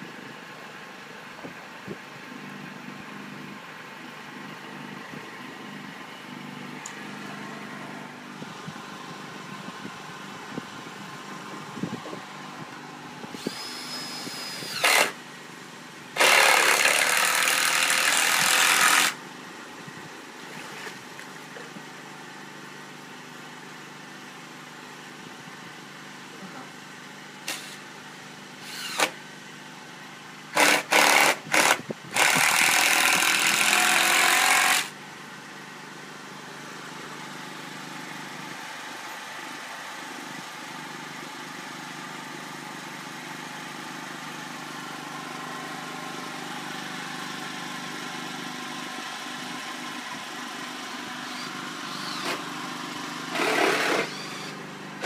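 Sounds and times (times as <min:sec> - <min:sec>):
engine hum: 0:00.0 - 0:55.0
power tool whining in bursts: 0:13.3 - 0:15.2, 0:16.2 - 0:19.2, 0:27.4 - 0:27.9, 0:28.6 - 0:29.2, 0:30.5 - 0:35.0, 0:51.2 - 0:52.6, 0:53.2 - 0:54.6.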